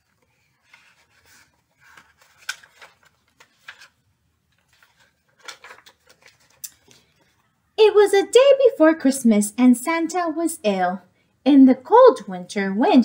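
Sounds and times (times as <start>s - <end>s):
paper book pages rustling: 0.0s - 7.5s.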